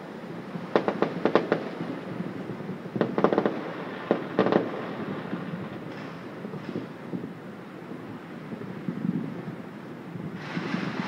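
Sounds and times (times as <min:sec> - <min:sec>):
distant fireworks and firecrackers: 0:00.3 - 0:07.3, 0:10.2 - 0:11.0.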